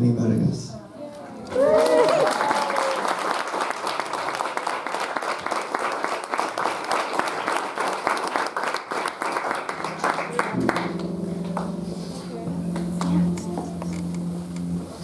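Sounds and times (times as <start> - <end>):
voices among clapping: 1.4 - 10.9
crowd applauding: 1.5 - 11.7
music: 9.3 - 15.0.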